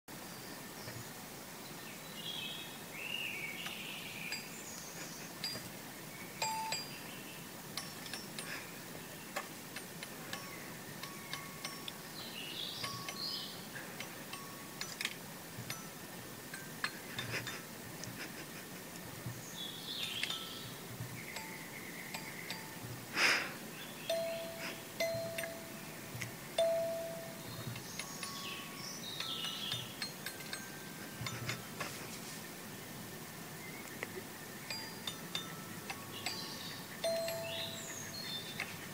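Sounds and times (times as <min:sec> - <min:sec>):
bird pecking xylophone bars: 0:06.4 - 0:07.0, 0:07.7 - 0:08.7, 0:09.3 - 0:12.1, 0:12.8 - 0:18.2, 0:20.0 - 0:23.0, 0:24.1 - 0:32.0, 0:34.7 - 0:38.9.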